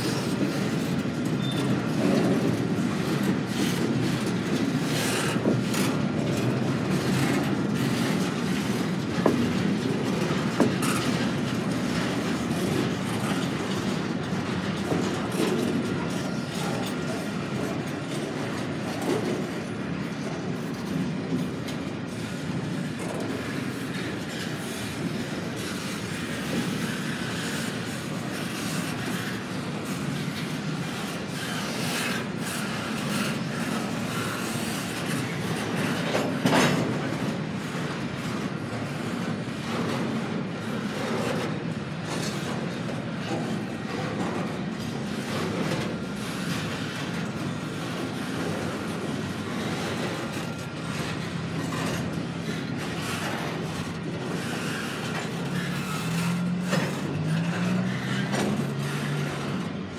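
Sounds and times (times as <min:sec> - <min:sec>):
train rumble: 0:00.0 - 0:59.9
train wheels clicking over rail joints: 0:00.0 - 0:59.9
wheel squeals: 0:01.3 - 0:02.1.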